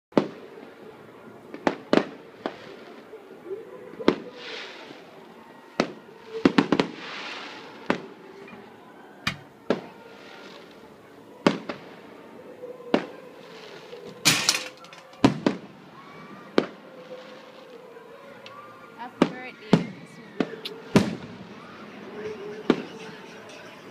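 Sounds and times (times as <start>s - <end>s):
fireworks bangs: 0.2s - 3.4s, 4.0s - 12.2s, 12.9s - 18.4s, 19.0s - 23.9s
fireworks crackling: 0.2s - 8.8s, 9.4s - 23.9s
fireworks hissing: 4.1s - 8.4s, 9.4s - 12.0s, 19.0s - 23.9s.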